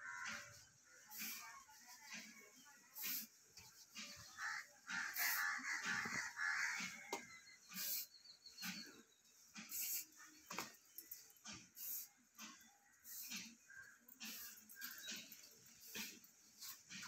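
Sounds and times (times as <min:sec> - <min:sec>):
spray bottle spritzing: 0:09.6 - 0:10.7, 0:11.8 - 0:12.1.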